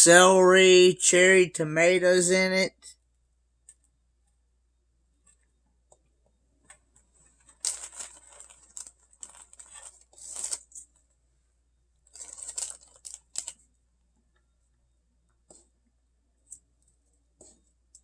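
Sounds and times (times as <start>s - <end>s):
plastic wrapper rustling: 7.3s - 11.0s, 12.1s - 13.6s.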